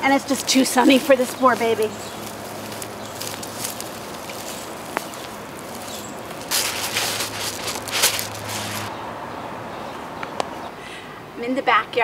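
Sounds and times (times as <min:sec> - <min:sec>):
leaves and soil rustling: 0:00.0 - 0:09.0.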